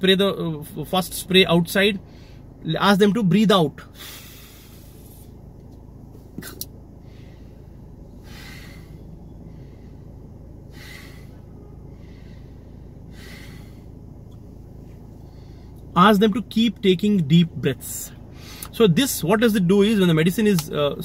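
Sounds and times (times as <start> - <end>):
man breathing deeply: 2.0 - 2.6, 3.9 - 5.5, 6.8 - 15.9, 18.2 - 18.8.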